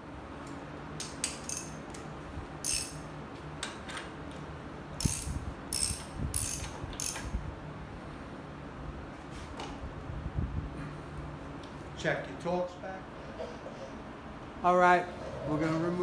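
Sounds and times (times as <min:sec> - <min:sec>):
ratchet clicking: 0:01.0 - 0:01.8, 0:02.6 - 0:03.0, 0:05.0 - 0:07.3.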